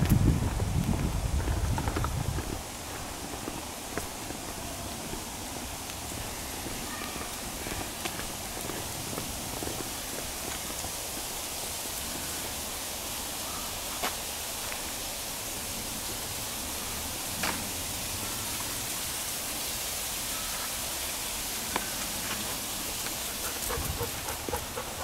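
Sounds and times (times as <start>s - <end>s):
outdoor hiss: 0.0s - 25.0s.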